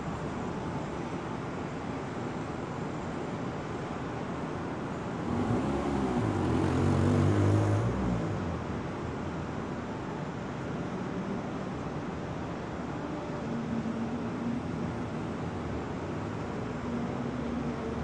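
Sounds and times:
outdoor background noise: 0:00.0 - 0:18.0
vehicle engine passing: 0:05.3 - 0:08.7.

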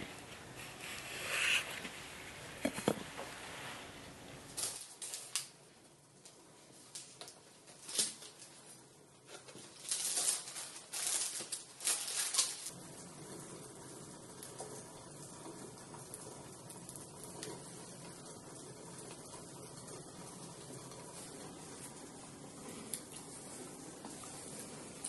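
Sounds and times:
plastic container crinkling: 0:09.3 - 0:12.7.

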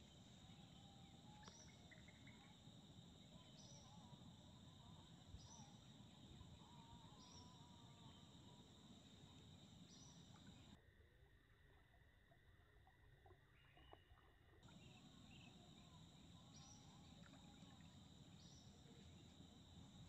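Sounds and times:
faint high insect drone: 0:00.0 - 0:12.4, 0:14.6 - 0:20.0.

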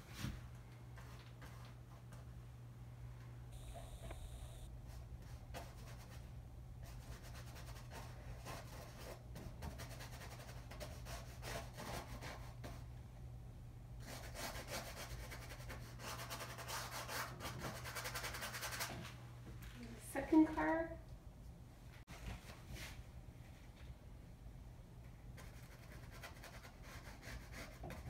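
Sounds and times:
low hum: 0:02.2 - 0:05.4.

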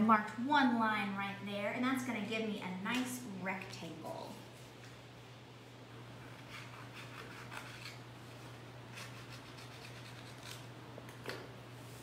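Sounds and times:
scissors snipping paper: 0:09.0 - 0:10.7.

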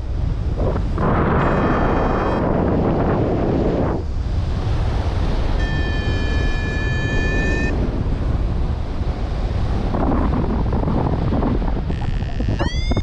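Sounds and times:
wind noise on microphone: 0:00.0 - 0:13.0
steady electronic tone: 0:01.3 - 0:02.6, 0:05.6 - 0:07.8, 0:11.9 - 0:13.0.

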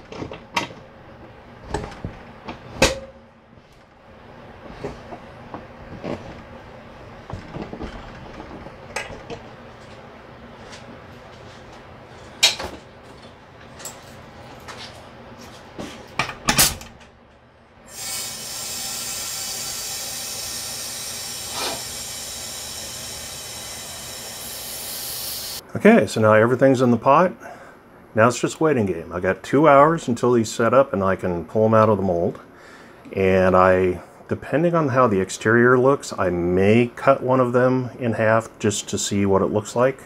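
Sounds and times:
compressed air hissing: 0:17.9 - 0:25.6.

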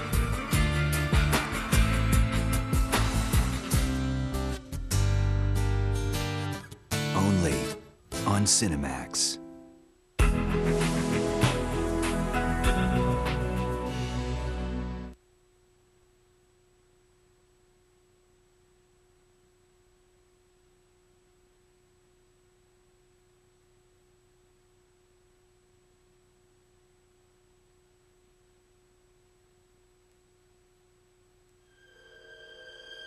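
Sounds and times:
faint low hum: 0:15.2 - 0:31.8.

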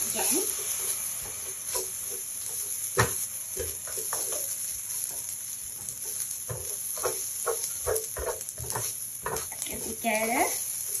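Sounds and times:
rice sizzling in a wok: 0:00.0 - 0:11.0
metal spatula scraping and knocking pan: 0:01.2 - 0:05.2, 0:06.0 - 0:10.0.

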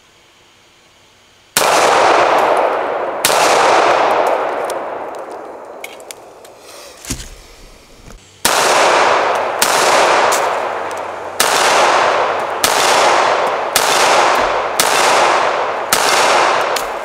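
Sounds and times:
pistol shots with echo: 0:01.6 - 0:06.1, 0:08.4 - 0:17.0.

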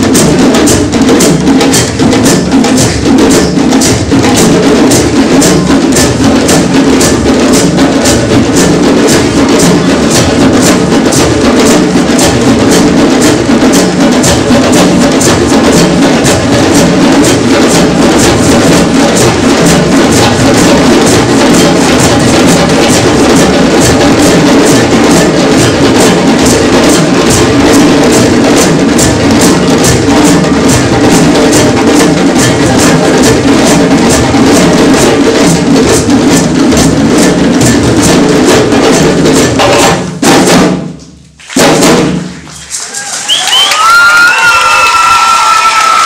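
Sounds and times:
drum ensemble playing fast rhythm: 0:00.0 - 0:46.0.

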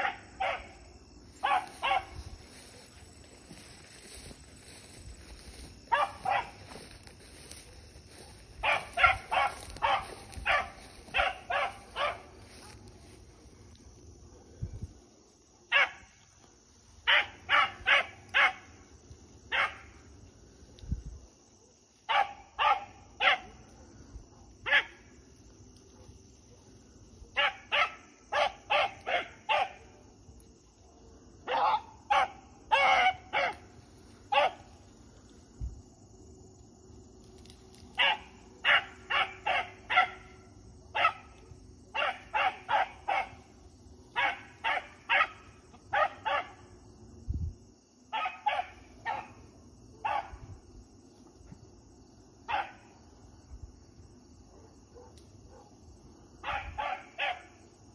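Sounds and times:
hound barking: 0:00.0 - 0:03.0, 0:05.9 - 0:12.8, 0:15.7 - 0:16.2, 0:17.0 - 0:18.9, 0:19.5 - 0:20.1, 0:21.6 - 0:25.1, 0:25.9 - 0:30.1, 0:30.9 - 0:35.0, 0:37.9 - 0:46.7, 0:48.1 - 0:50.5, 0:52.5 - 0:53.0, 0:54.5 - 0:55.8, 0:56.4 - 0:57.6.

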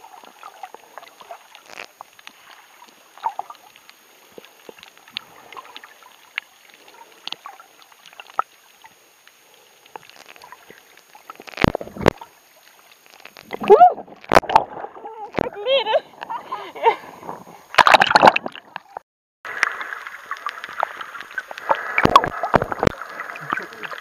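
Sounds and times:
faint water hiss: 0:00.0 - 0:17.8, 0:18.5 - 0:24.0
small underwater clicks and crackles: 0:00.0 - 0:24.0.

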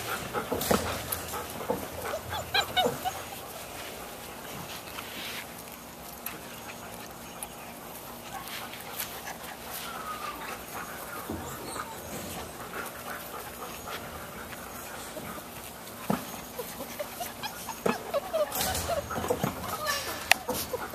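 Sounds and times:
puppies scuffling: 0:00.0 - 0:20.9
puppies whining and yipping: 0:00.0 - 0:20.9.

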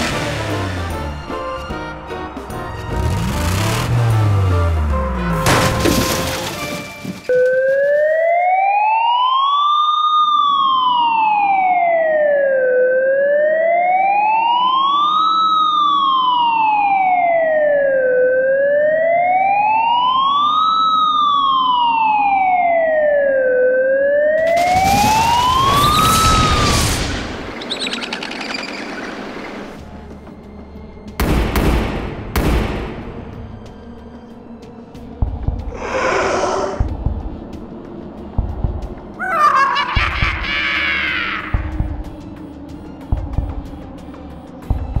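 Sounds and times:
police siren wailing: 0:07.3 - 0:27.5, 0:39.1 - 0:44.9
loud rushing noise: 0:35.7 - 0:36.9.

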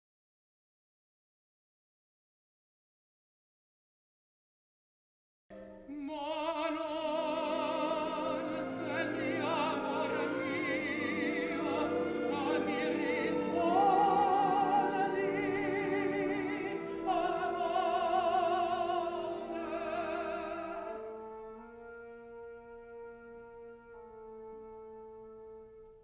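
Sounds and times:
operatic singing: 0:05.9 - 0:22.7.

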